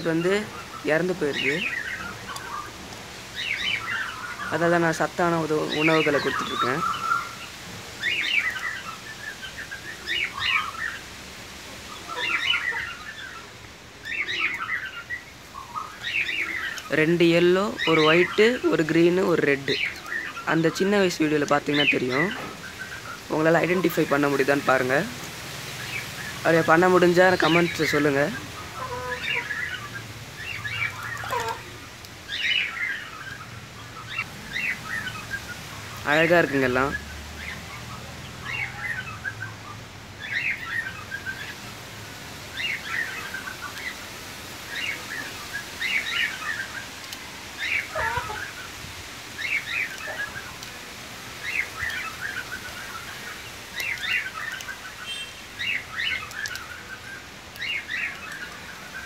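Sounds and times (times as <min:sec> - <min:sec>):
chicks peeping: 0:25.9 - 0:33.1, 0:42.6 - 0:54.9
chicks cheeping: 0:42.5 - 0:50.7
chicken call falling in pitch: 0:47.9 - 0:48.5.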